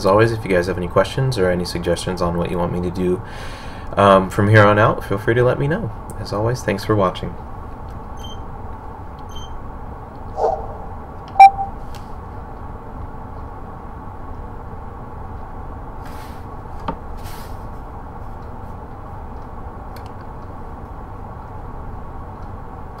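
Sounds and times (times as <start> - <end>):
low background hum: 0.0 - 23.0
pitched blip: 10.4 - 11.7.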